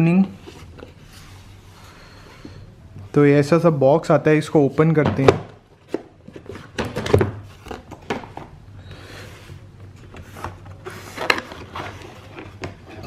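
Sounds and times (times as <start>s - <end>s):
cardboard box rustling and scraping: 10.1s - 13.0s.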